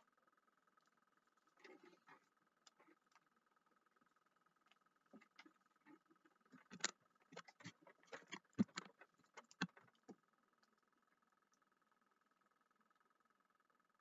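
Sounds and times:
faint steady tone: 0.0s - 14.0s
handling clicks and rustles: 5.2s - 10.2s.

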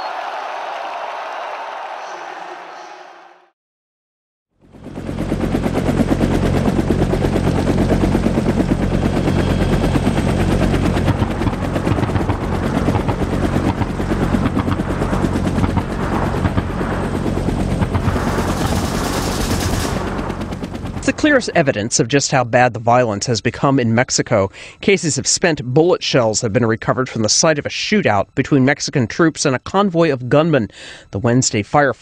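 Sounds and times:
low drone: 4.8s - 21.9s.

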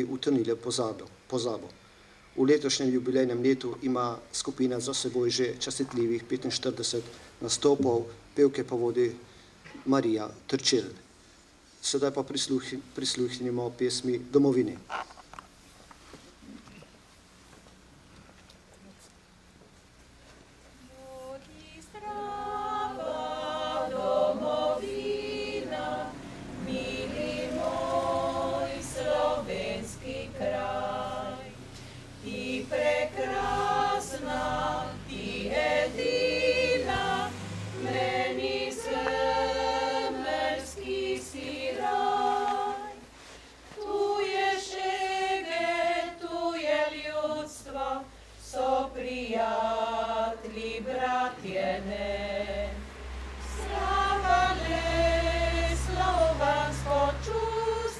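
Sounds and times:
women's choir singing a cappella: 20.7s - 57.9s.

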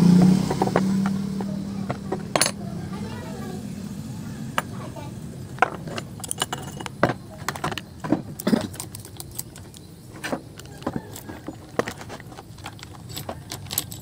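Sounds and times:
chainsaw chain links clinking: 5.9s - 7.0s, 10.6s - 14.0s.

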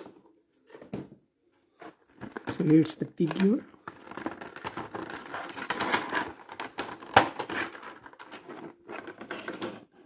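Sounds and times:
plastic packaging crinkling: 1.8s - 9.6s
plastic snapping: 3.3s - 8.4s.

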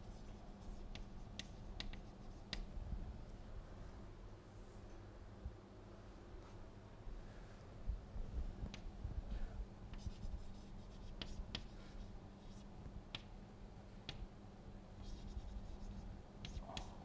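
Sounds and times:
low steady hum: 0.0s - 17.0s
chalk tapping on board: 0.7s - 2.7s, 10.0s - 11.8s, 15.0s - 17.0s
chalk scratching on blackboard: 10.0s - 12.6s, 15.0s - 16.9s.

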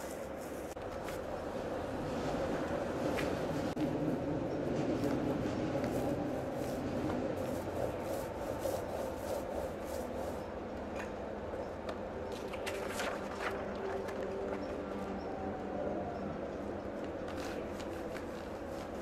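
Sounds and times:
light rubbing strokes: 0.0s - 1.2s, 5.8s - 10.6s.

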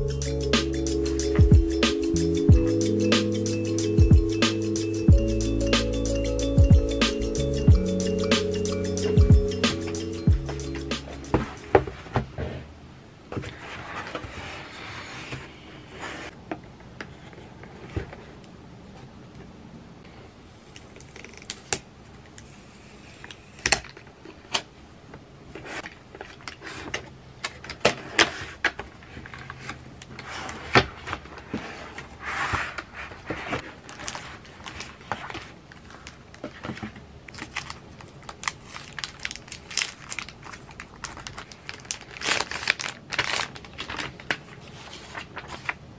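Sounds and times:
sliding scrapes: 13.4s - 16.3s, 28.0s - 36.9s
plastic sleeve rustling: 29.1s - 45.9s.

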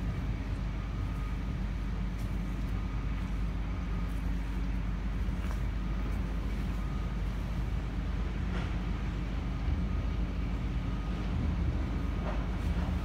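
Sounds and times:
faint high whine: 0.0s - 8.4s
diesel engine idling: 0.0s - 13.0s.

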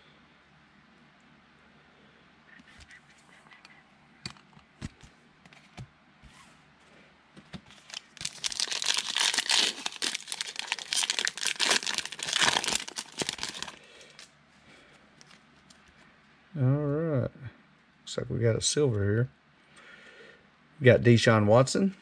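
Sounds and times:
wrapper torn open and crinkled: 7.7s - 14.3s.

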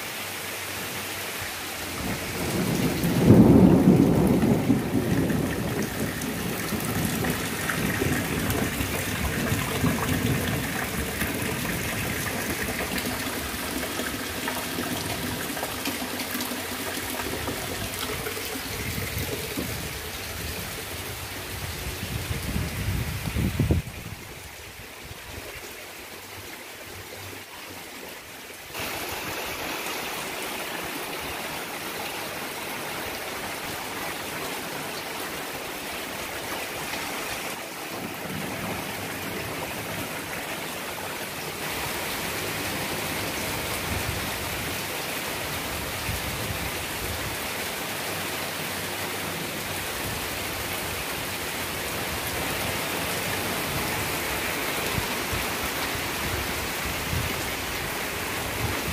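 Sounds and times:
steady rain falling: 0.0s - 58.9s.

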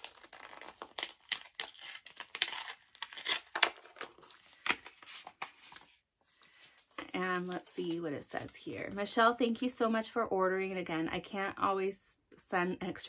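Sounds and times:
paper packaging crinkling: 0.0s - 9.0s.

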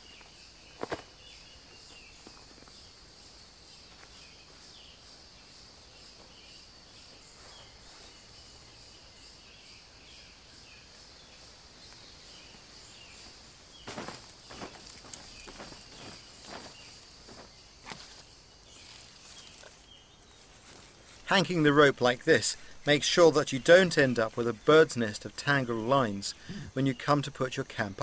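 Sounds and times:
insects pulsing high drone: 0.0s - 28.0s
rustling and knocking: 13.8s - 18.1s.

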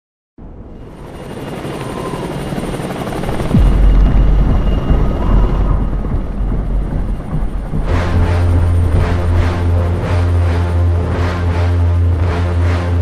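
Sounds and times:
helicopter rotor chopping: 0.8s - 13.0s
heavy low rumble: 3.4s - 13.0s
deep boom: 3.5s - 10.1s.

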